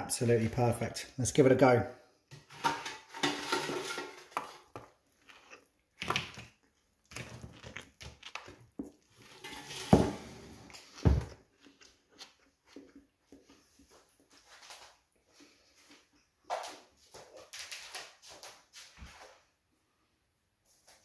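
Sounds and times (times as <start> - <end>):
bread crackling and rustling: 3.1 - 15.7
person eating a wrap: 4.7 - 9.3, 10.6 - 18.6.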